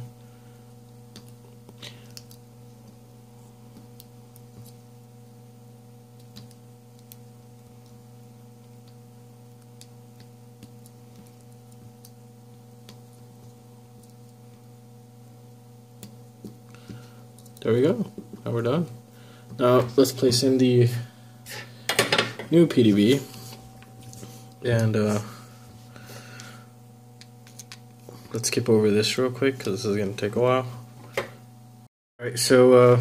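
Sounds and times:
steady electrical hum: 0.0 - 33.0
soldering iron clicks and ticks: 6.2 - 8.0.

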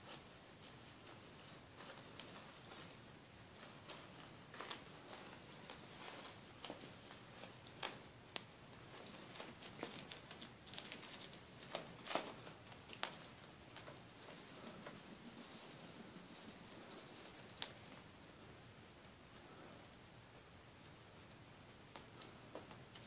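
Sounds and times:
puppies scrabbling on paper pad: 8.9 - 14.0.

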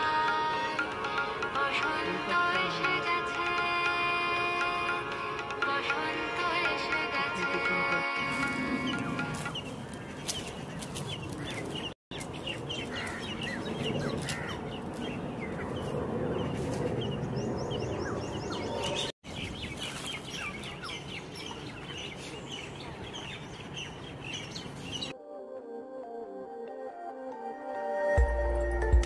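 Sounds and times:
birds chirping and calling: 7.4 - 25.1.

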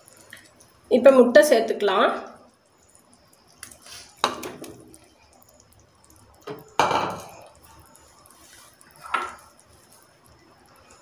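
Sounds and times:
eggs splashing into water: 2.5 - 11.0.

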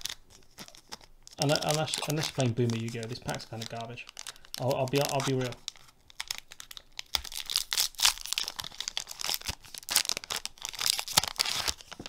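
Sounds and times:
foil wrapper tearing and crinkling: 0.0 - 12.0.

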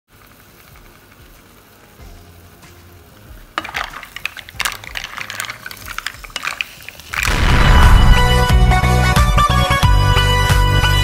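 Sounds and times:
mussel shells clattering in pot: 3.5 - 7.3.

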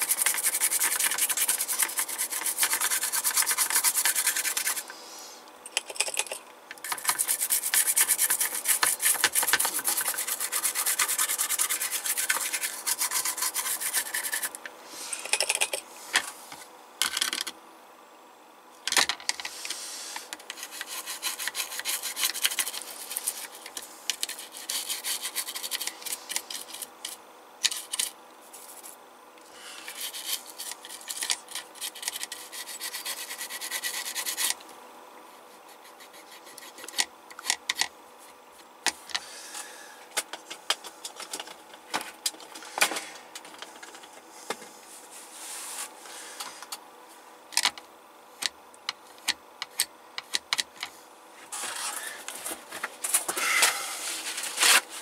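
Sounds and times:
toothbrush scrubbing circuit board: 0.0 - 4.9, 6.8 - 14.6, 20.5 - 26.9, 29.8 - 34.6, 35.7 - 37.8.

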